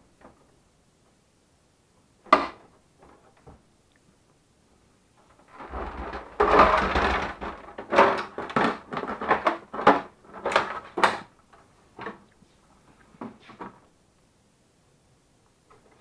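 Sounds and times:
plastic housing rattling and knocking: 0:05.4 - 0:11.3.

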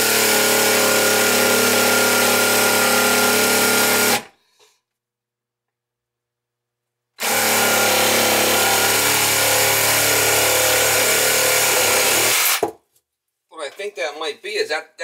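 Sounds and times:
reciprocating saw cutting pipe: 0:07.2 - 0:12.6.

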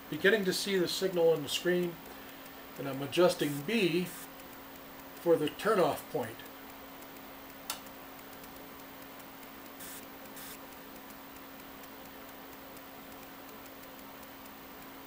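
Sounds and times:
faint ticking: 0:00.0 - 0:15.0
sharp click: 0:03.4 - 0:14.9
short soft hisses: 0:09.8 - 0:10.6.

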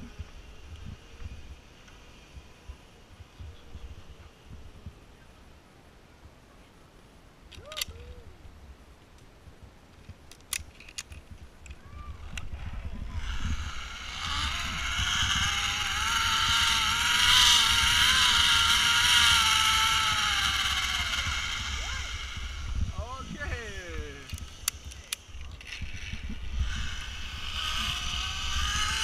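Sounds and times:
zipline pulley whirring whine: 0:00.0 - 0:05.0, 0:10.5 - 0:29.0
rushing wind: 0:07.6 - 0:29.0.

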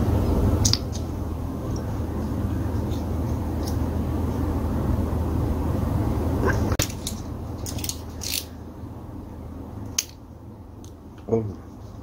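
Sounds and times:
steady low rumble: 0:00.0 - 0:12.0
small parts clicking: 0:06.8 - 0:08.5.

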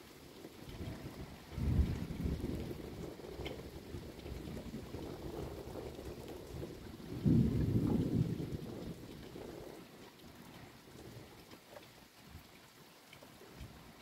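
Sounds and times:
thunder rumbling: 0:00.6 - 0:10.0.

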